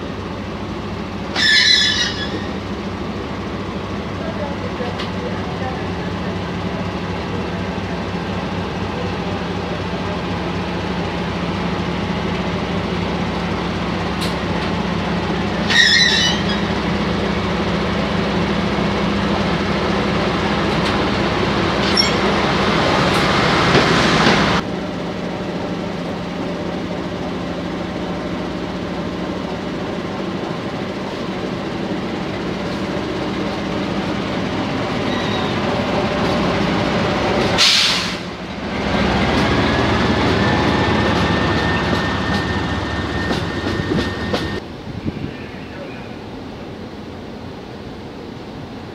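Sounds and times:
diesel locomotive engine running: 0:00.0 - 0:48.9
brief squeal: 0:01.4 - 0:02.5, 0:15.7 - 0:16.7, 0:21.8 - 0:22.4, 0:35.0 - 0:35.6
short loud hiss: 0:37.6 - 0:38.3.

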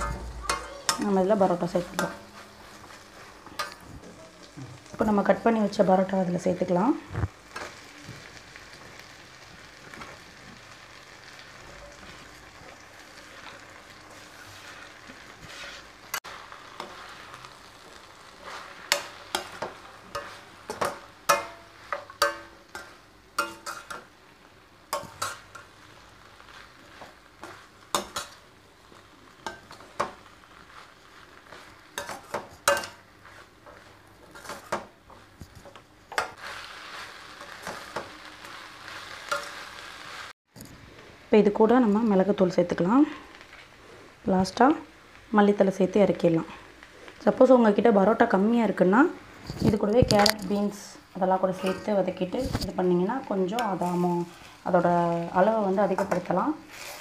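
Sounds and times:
steel spatula scraping a pan: 0:00.0 - 0:04.4, 0:13.4 - 0:24.1, 0:24.9 - 0:28.4, 0:29.4 - 0:40.3, 0:55.8 - 0:57.0
food sizzling in a pan: 0:00.0 - 0:57.0.

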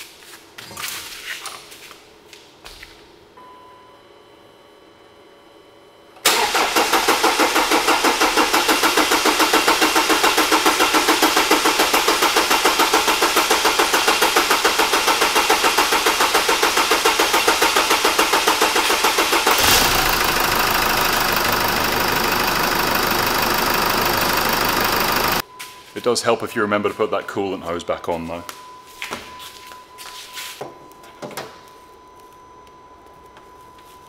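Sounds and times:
diesel engine cranking: 0:06.2 - 0:25.4
diesel engine idling: 0:06.3 - 0:25.4.

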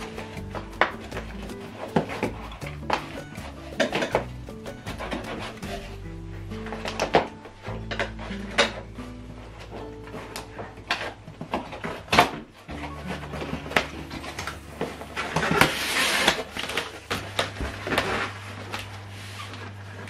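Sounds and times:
box sliding out of carton: 0:14.8 - 0:16.8.

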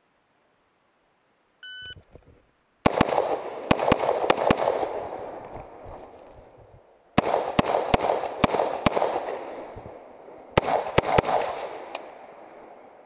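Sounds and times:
rifle gunshots with echo: 0:02.8 - 0:06.2, 0:07.2 - 0:12.5.

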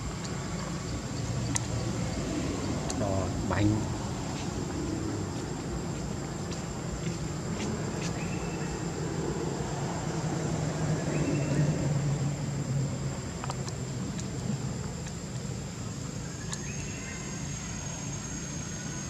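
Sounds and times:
low engine-like hum: 0:00.0 - 0:19.0
faint clicks: 0:16.4 - 0:16.7.

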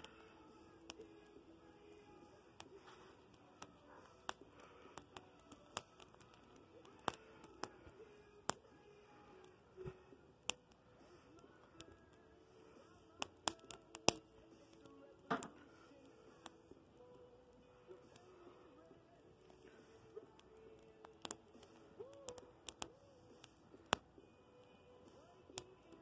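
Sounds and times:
branches burning and crackling: 0:00.0 - 0:26.0
sharp fire pops: 0:13.1 - 0:15.6.

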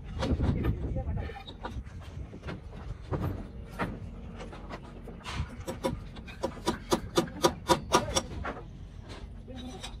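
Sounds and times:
hammer striking timber: 0:05.7 - 0:08.5.

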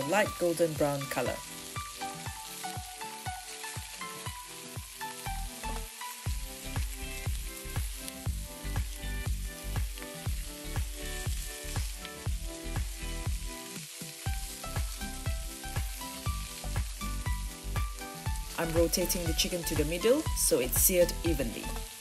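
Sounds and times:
background music with steady beat: 0:00.0 - 0:22.0
chicken wings sizzling in hot oil: 0:00.0 - 0:22.0.

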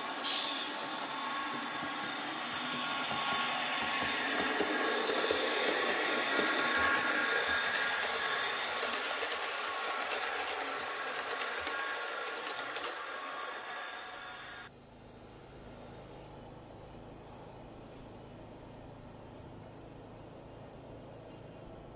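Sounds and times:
wheels clicking over track: 0:00.0 - 0:14.7
model train motor whine: 0:00.0 - 0:16.5.

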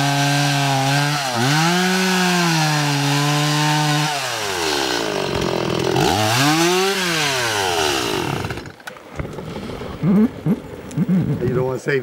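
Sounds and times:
chainsaw cutting log: 0:00.0 - 0:09.4.

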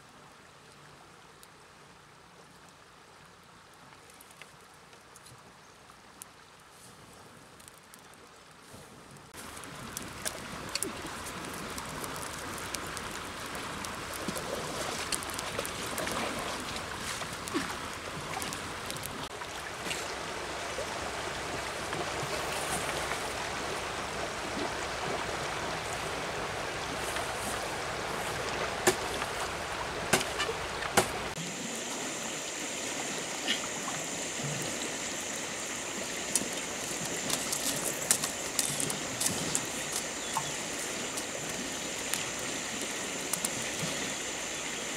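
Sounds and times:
river rushing over stones: 0:09.3 - 0:44.9.

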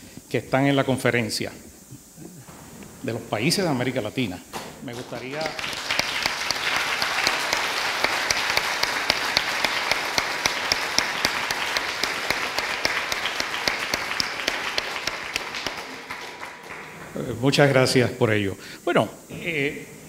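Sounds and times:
crowd applauding: 0:04.6 - 0:17.9.

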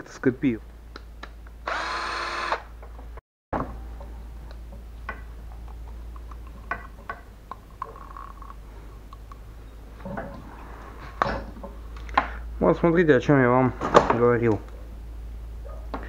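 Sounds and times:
cordless drill whining: 0:01.6 - 0:02.7.

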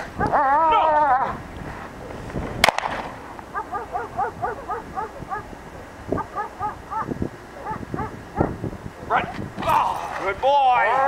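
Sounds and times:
dog yipping: 0:03.5 - 0:05.5, 0:06.1 - 0:08.6.

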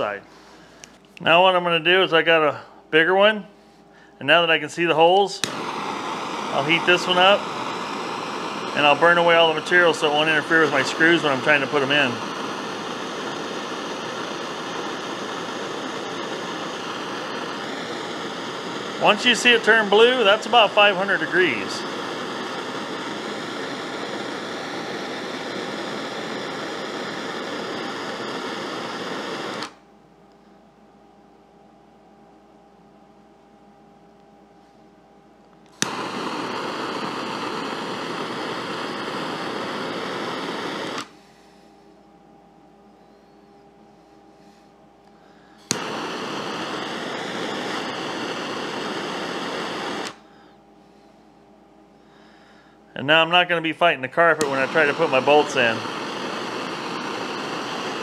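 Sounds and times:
gas torch hissing: 0:04.1 - 0:29.8, 0:35.7 - 0:41.6, 0:44.0 - 0:50.6, 0:52.1 - 0:58.0.

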